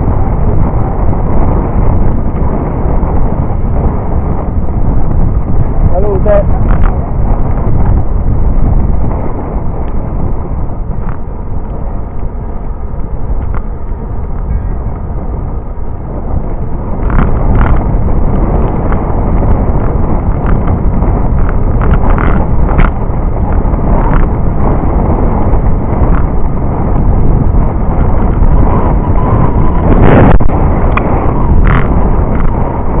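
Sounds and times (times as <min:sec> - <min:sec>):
wind buffeting microphone: 0:00.0 - 0:33.0.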